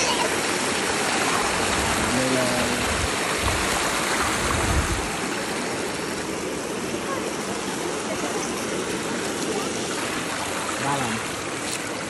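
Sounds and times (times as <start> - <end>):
water rushing over rocks: 0.0 - 12.0
wind buffeting microphone: 2.8 - 5.2.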